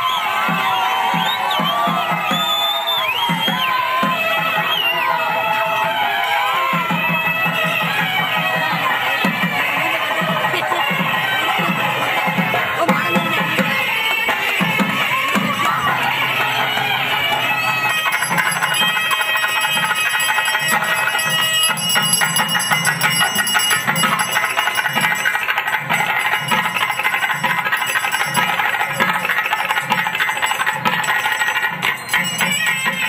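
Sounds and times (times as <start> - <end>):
festival music: 6.7 - 33.0
bell rung rapidly: 17.5 - 33.0.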